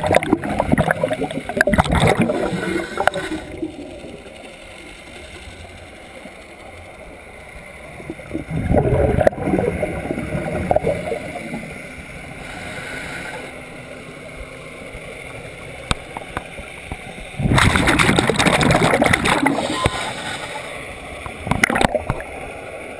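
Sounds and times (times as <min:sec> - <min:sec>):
underwater exhaled bubbles gurgling: 0:00.0 - 0:04.8, 0:07.8 - 0:13.1, 0:15.9 - 0:22.4.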